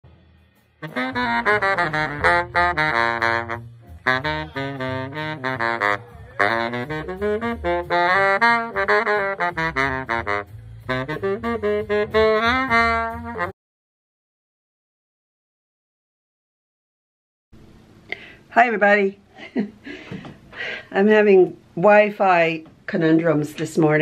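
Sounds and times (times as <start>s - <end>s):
baritone saxophone playing fast runs: 0.8s - 13.6s.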